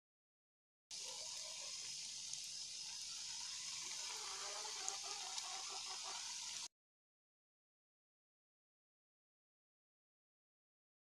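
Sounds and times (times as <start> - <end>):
oil sizzling in a pan: 0.9 - 6.7.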